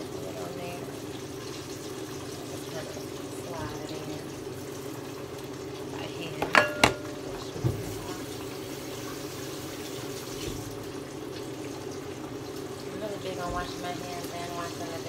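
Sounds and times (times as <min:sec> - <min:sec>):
fish frying in oil: 0:00.0 - 0:15.0
range hood blower hum: 0:00.0 - 0:15.0
dishware clinking: 0:06.4 - 0:07.6.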